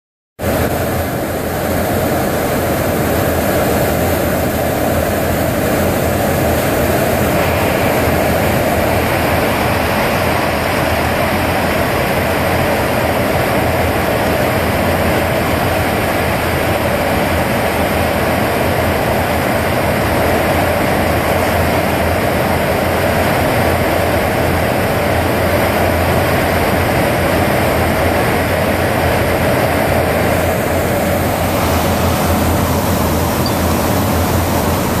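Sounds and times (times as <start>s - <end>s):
jet engine drone: 0.4s - 35.0s
rushing airflow: 0.4s - 35.0s.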